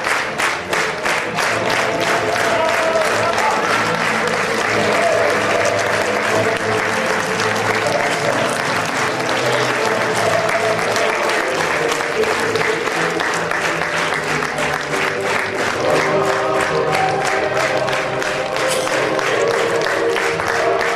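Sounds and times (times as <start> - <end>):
audience applauding: 0.0 - 20.9
music playing: 0.0 - 20.9.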